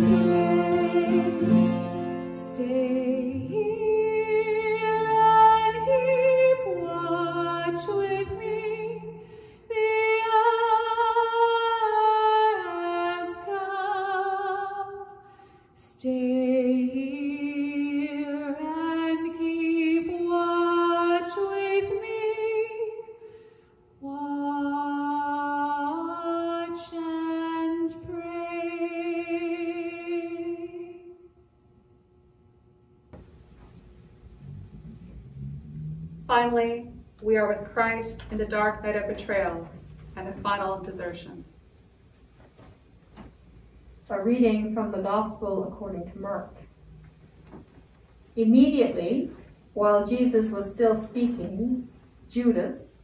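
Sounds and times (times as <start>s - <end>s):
acoustic guitar: 0.0s - 14.0s, 33.1s - 44.0s
woman singing: 0.0s - 15.1s, 15.8s - 23.2s, 24.0s - 31.2s.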